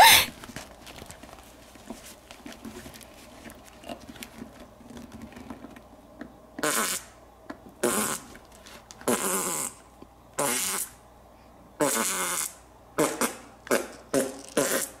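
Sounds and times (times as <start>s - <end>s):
fart noises: 6.6s - 7.0s, 7.8s - 8.3s, 9.0s - 9.8s, 10.4s - 11.0s, 11.8s - 15.0s.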